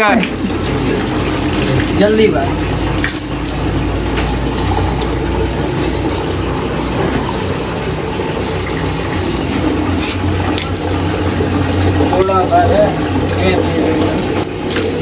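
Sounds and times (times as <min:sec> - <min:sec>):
tap water running into steel cup: 0:00.0 - 0:15.0.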